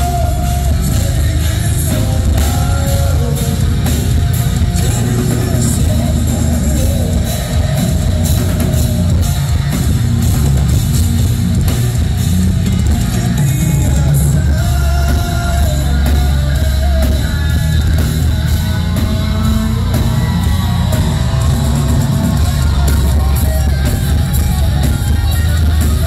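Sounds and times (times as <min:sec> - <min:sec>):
bass guitar: 0:00.0 - 0:26.0
distorted electric guitars: 0:00.0 - 0:26.0
pounding drum kit: 0:00.0 - 0:26.0.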